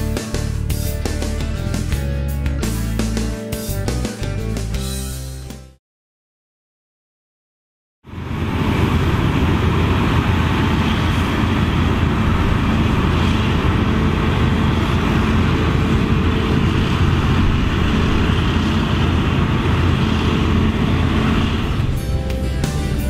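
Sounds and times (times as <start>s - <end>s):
combine harvester droning: 8.1s - 23.0s.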